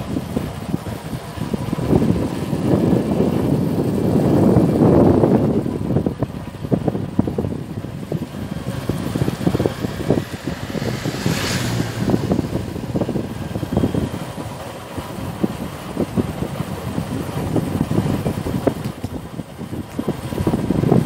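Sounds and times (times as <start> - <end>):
road noise: 0.0 - 21.0
wind buffeting microphone: 0.0 - 21.0
car passing whoosh: 7.8 - 14.6.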